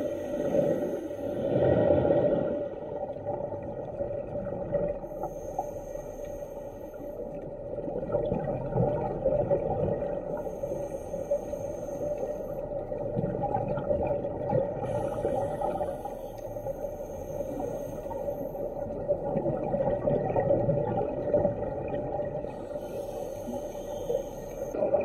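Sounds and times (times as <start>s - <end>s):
diver breathing through regulator: 5.0s - 7.3s, 10.3s - 12.8s, 14.8s - 18.9s, 22.4s - 24.8s
bubbles rising underwater: 7.7s - 10.4s, 12.9s - 15.6s, 18.8s - 22.6s, 24.7s - 25.0s.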